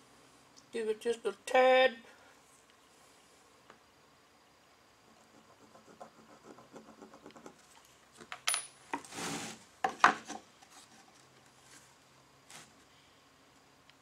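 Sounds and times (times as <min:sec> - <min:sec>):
marker drawing on wood: 0:05.1 - 0:07.6
wood sliding with scrape: 0:09.0 - 0:11.9.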